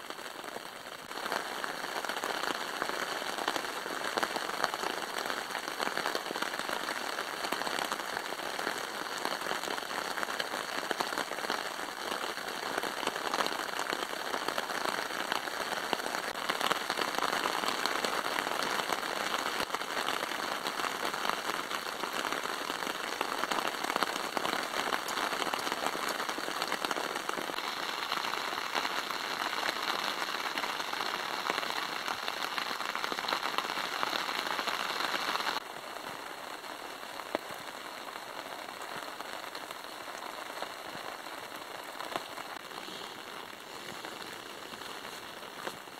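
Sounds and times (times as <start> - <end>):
rain pattering on a tarp: 0.0 - 45.9.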